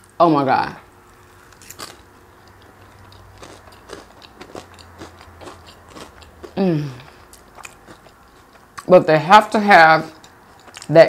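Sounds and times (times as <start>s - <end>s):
crunchy chewing: 0.9s - 8.9s, 10.2s - 11.0s
person saying mmm: 6.6s - 7.1s.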